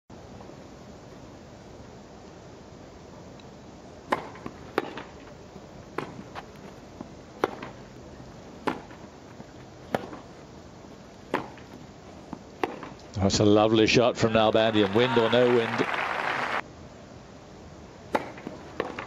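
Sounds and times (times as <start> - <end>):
low background noise: 0.1 - 19.0
racket striking tennis ball: 4.1 - 10.4, 11.3 - 13.0, 18.1 - 19.0
tennis ball bouncing: 4.1 - 10.5, 11.2 - 13.0, 18.1 - 19.0.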